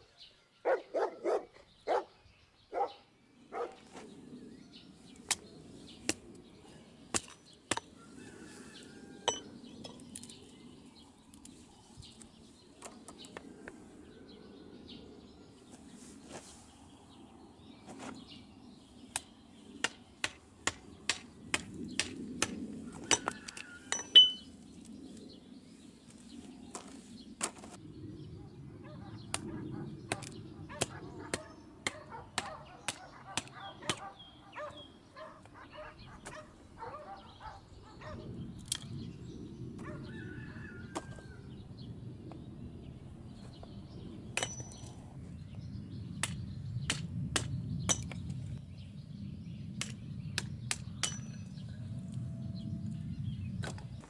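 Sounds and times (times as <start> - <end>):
hatchet chopping wood on stone: 7.1 - 7.9, 19.8 - 24.4.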